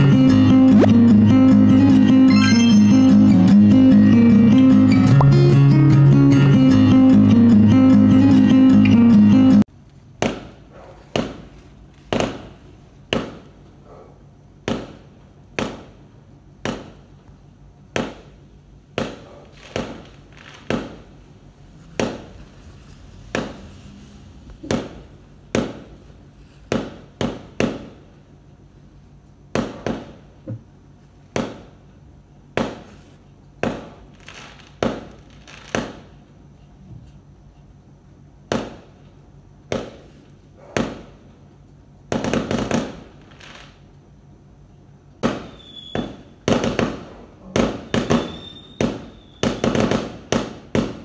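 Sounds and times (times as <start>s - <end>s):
fireworks bursting with sharp bangs: 10.2s - 11.5s, 12.1s - 13.6s, 14.6s - 17.1s, 17.9s - 28.2s, 29.5s - 30.4s, 31.3s - 31.8s, 32.5s - 33.0s, 33.6s - 36.2s, 38.5s - 39.0s, 39.7s - 41.2s, 42.1s - 43.8s, 45.2s - 51.0s.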